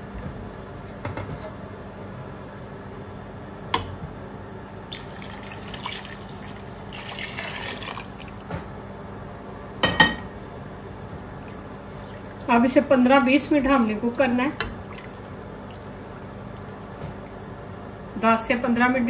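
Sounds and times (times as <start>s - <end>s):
liquid pouring and splashing: 4.9s - 8.4s, 11.8s - 12.5s, 14.7s - 16.7s.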